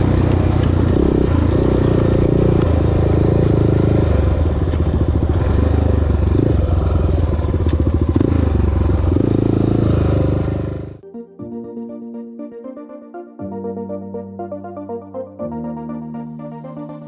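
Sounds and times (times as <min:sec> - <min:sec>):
quad bike engine revving: 0:00.0 - 0:11.0.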